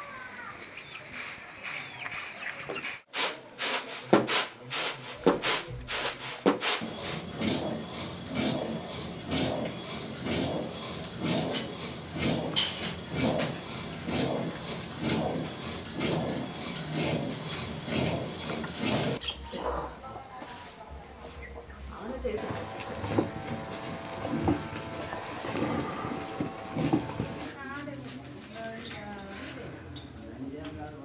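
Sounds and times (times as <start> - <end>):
stone grinding on stone: 5.5 - 19.2.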